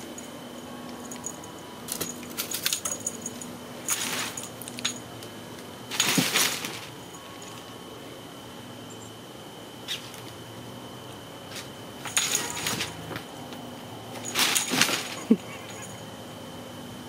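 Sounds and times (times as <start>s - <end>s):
rustling and rattling of toy: 1.0s - 5.0s, 5.9s - 7.7s, 11.5s - 13.4s, 14.1s - 16.0s.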